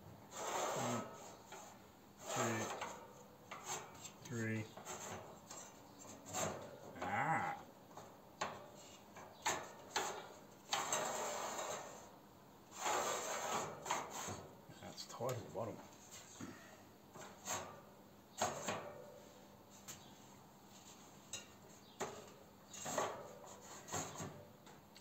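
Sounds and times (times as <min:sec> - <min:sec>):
plastic fan scraping on wood: 0:00.2 - 0:16.4, 0:20.7 - 0:24.5.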